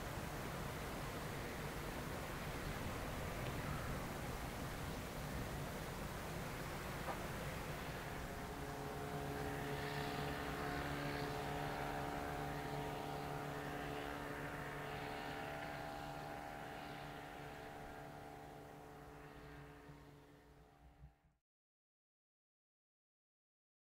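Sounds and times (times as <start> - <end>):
background rush: 0.0 - 14.8
engine drone: 0.0 - 21.4.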